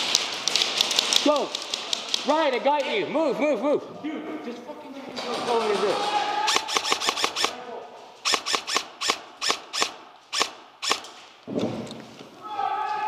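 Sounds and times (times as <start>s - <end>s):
airsoft rifle shots: 5.5s - 7.6s, 8.2s - 11.2s.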